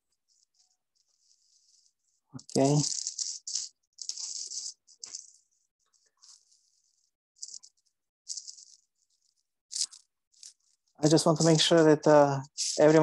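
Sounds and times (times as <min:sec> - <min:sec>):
scratchy rattling noise: 0:00.3 - 0:13.0.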